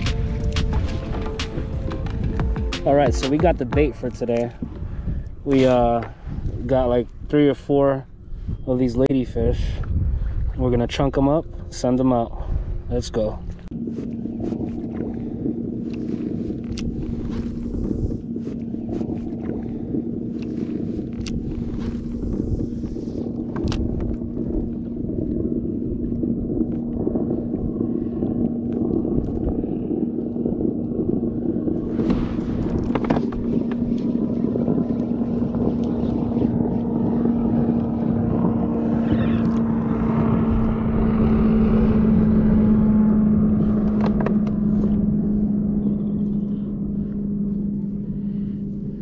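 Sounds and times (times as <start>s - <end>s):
boat motor running: 0.0s - 49.0s
wind on microphone: 0.0s - 49.0s.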